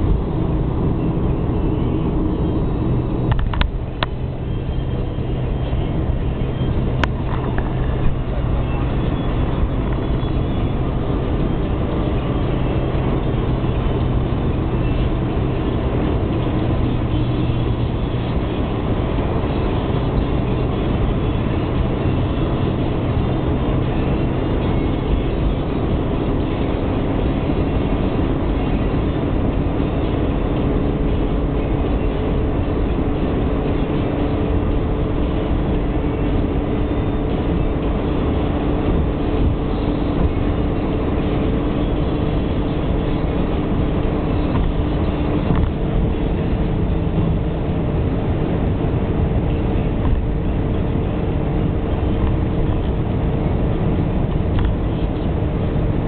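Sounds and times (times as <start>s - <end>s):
car cabin road and wind noise: 0.0s - 56.0s.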